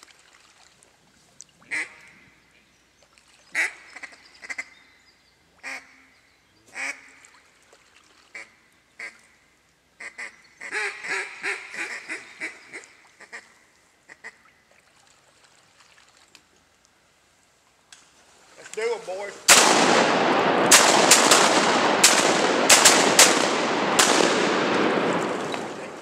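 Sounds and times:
duck quacking: 1.7 - 2.1, 10.0 - 13.5.

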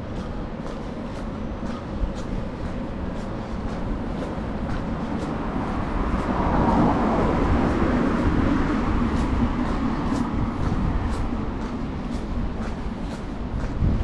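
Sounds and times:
city street traffic: 0.0 - 14.0
vehicle passing close by: 3.7 - 12.8.

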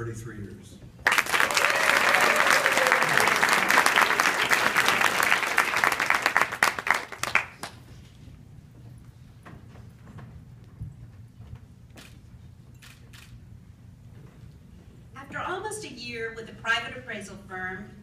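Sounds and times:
audience applauding: 1.0 - 7.8.

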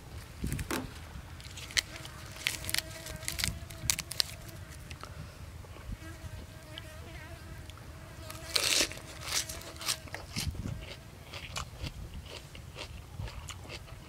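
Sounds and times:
leaves crackling: 0.0 - 5.0, 8.3 - 10.4
crunchy bite: 1.4 - 5.0, 8.3 - 14.0
faint insect buzz: 1.8 - 10.2.

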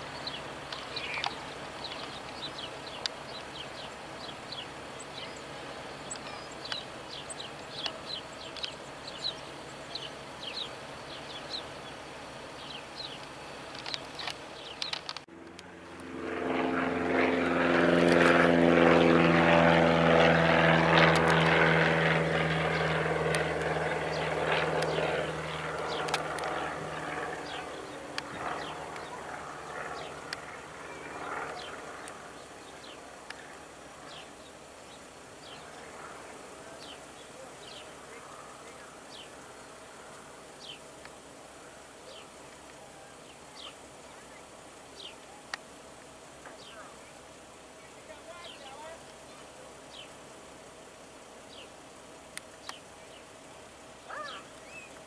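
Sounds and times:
propeller plane engine drone: 0.0 - 55.0.

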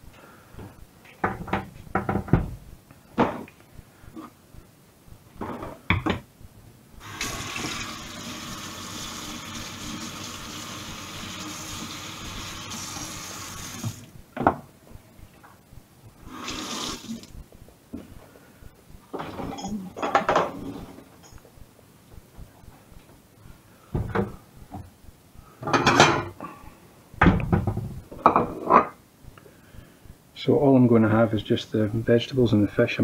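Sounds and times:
things clattering on counter: 25.6 - 26.3.

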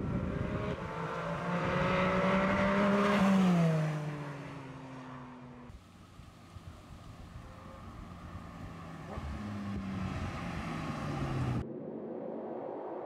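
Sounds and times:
sports car accelerating past: 0.0 - 5.6, 7.4 - 11.6.

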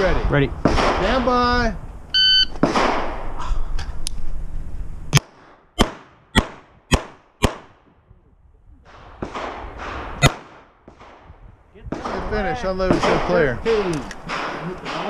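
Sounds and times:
handgun shots: 5.2 - 7.7, 9.2 - 10.6.

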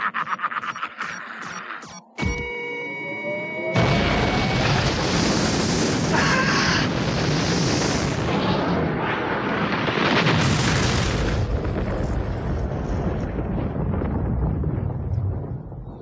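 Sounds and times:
electronic tone rising glide: 0.7 - 4.8
rumbling explosion blast: 3.8 - 16.0.

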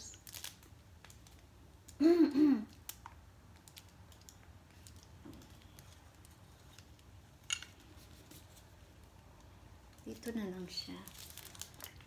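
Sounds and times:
light ticks of small items handled: 2.7 - 10.4.

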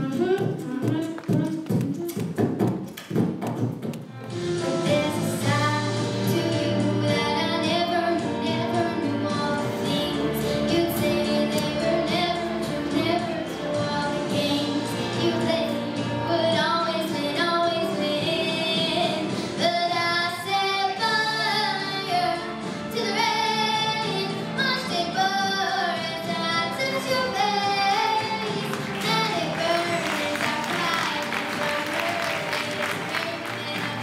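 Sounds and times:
musical accompaniment: 0.0 - 34.0
girl singing into a microphone: 4.7 - 34.0.

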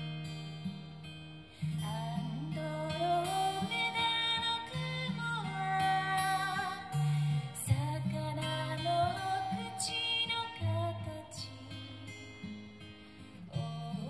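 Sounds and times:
acoustic guitar: 0.0 - 14.0
person singing: 1.7 - 12.1.

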